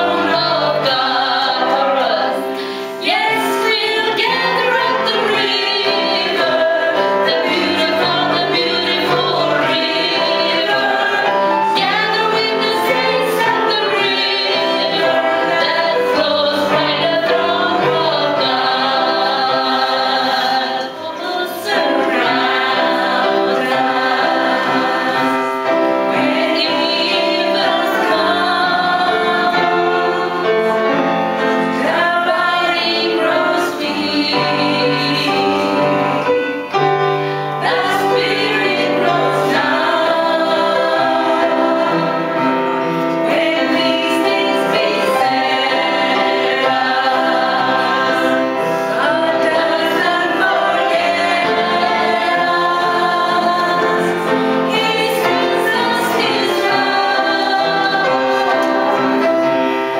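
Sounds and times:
instrumental accompaniment: 0.0 - 59.9
women singing a hymn: 0.0 - 59.9.

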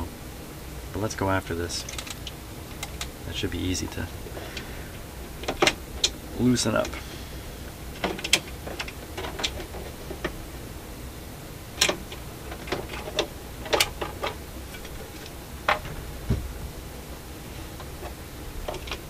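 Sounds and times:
turntable clicks and knocks: 7.9 - 10.4, 17.8 - 19.0
dull thump: 15.8 - 16.7.

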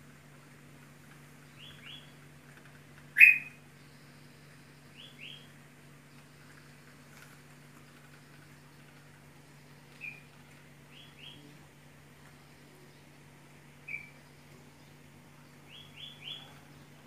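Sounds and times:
steady low hum: 0.0 - 17.0
faint high chirps: 3.2 - 5.5, 13.8 - 17.0.

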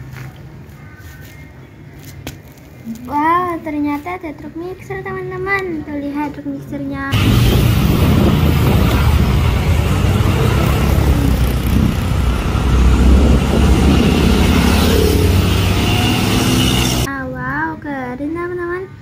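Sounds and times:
motorcycle and car engines: 7.1 - 17.1
truck diesel engine rumble: 7.2 - 17.1.

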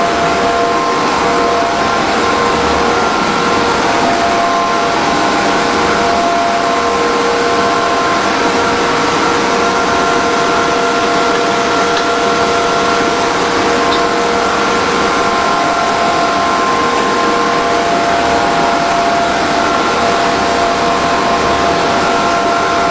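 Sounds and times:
extrusion machine hiss and whine: 0.0 - 22.9.

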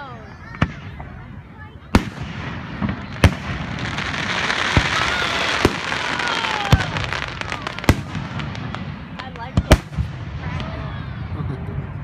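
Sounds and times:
fireworks bangs: 0.5 - 11.2
fireworks hissing crackle: 2.0 - 10.8.

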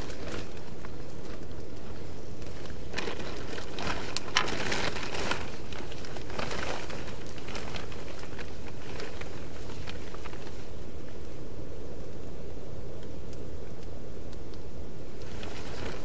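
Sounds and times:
plastic sheet and blanket rustling: 0.0 - 11.4, 15.1 - 16.0
steady low rumble: 0.0 - 16.0.

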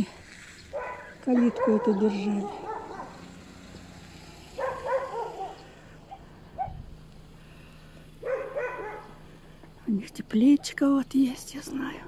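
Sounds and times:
dog barking: 0.7 - 3.4, 4.5 - 6.8, 8.2 - 9.2.

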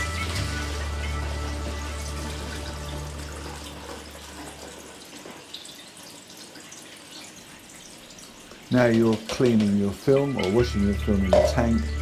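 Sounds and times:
background music: 0.0 - 4.2, 8.7 - 12.0
tap running into a sink: 8.5 - 11.8.

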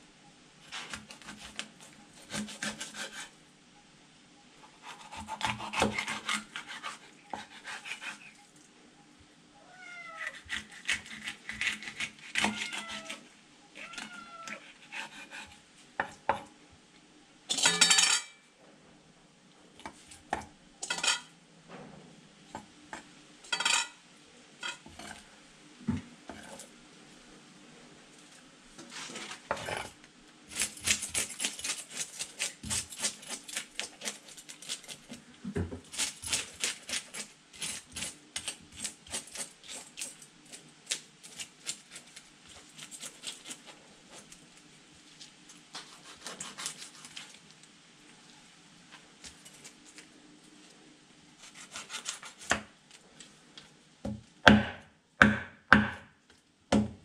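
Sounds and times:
knife scraping fish scales: 0.7 - 3.3, 4.7 - 8.4, 10.3 - 15.6, 30.5 - 35.2, 35.9 - 44.4, 45.7 - 47.4, 51.4 - 52.6.

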